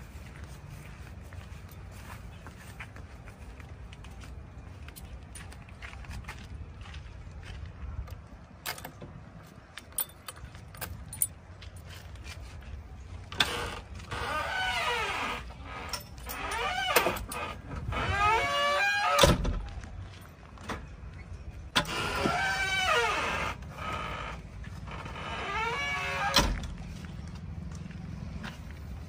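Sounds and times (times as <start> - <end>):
door hinges creaking: 13.3 - 19.6, 21.7 - 26.8.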